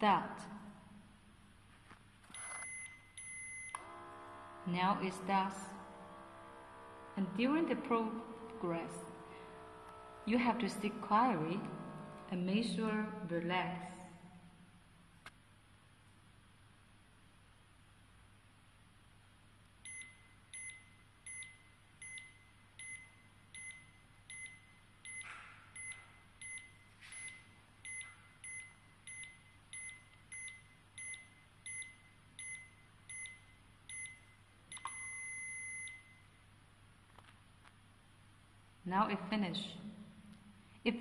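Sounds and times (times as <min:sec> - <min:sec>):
single longer beep: 0:19.9 - 0:36.2.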